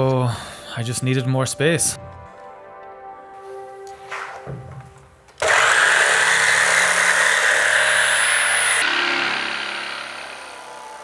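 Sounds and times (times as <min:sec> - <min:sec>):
soft background music: 0:00.0 - 0:05.3
jigsaw cutting plywood: 0:05.4 - 0:11.0.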